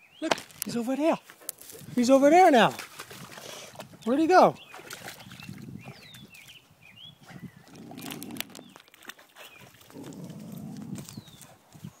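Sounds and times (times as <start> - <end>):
dog snorting and breathing: 9.4 - 11.6.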